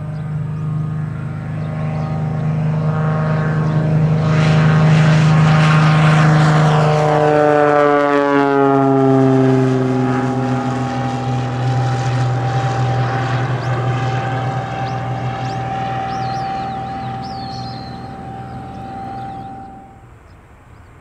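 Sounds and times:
propeller aircraft passing: 0.0s - 21.0s.

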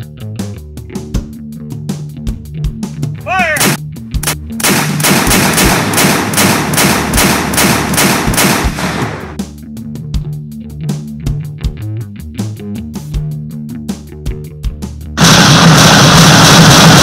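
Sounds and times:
rock music with guitar: 0.0s - 4.6s, 9.3s - 15.2s
rapid cannon fire: 3.6s - 9.4s, 15.2s - 17.0s.

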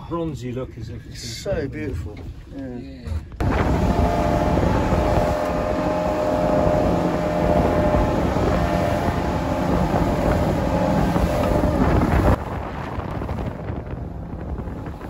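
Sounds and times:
motorboat engine drone: 3.1s - 15.0s
wind on microphone: 3.1s - 15.0s
water rushing: 3.4s - 15.0s.

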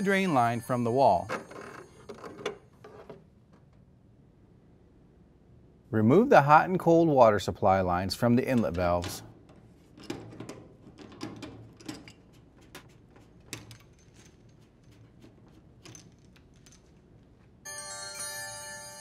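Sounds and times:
bright chime of held tones: 0.0s - 1.9s, 17.6s - 19.0s.

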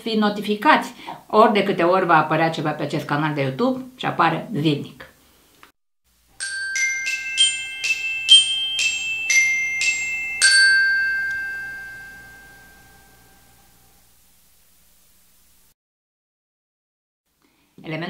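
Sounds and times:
glockenspiel jingle: 6.4s - 13.7s.

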